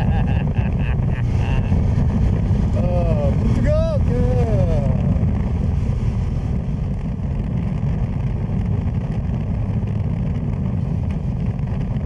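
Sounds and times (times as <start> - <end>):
motorcycle engine running: 0.0 - 12.0
wind noise: 0.0 - 12.0.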